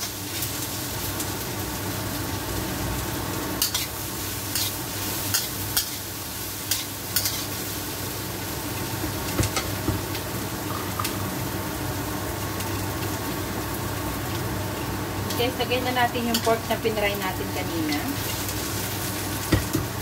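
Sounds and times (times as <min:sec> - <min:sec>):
vegetables sizzling in a wok: 0:00.0 - 0:20.0
metal spatula scraping a wok: 0:06.7 - 0:07.5.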